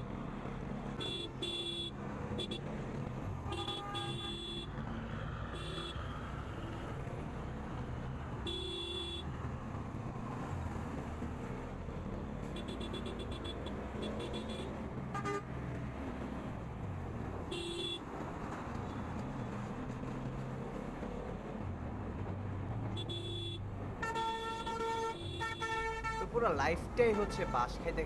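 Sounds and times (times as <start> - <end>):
wind and road noise: 0.0 - 28.0.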